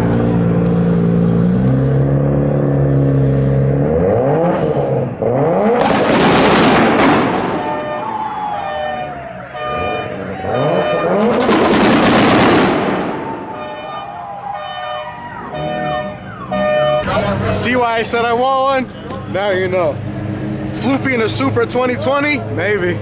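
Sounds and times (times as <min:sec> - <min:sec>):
car engine revving: 0:00.0 - 0:08.2, 0:09.0 - 0:13.3, 0:19.2 - 0:23.0.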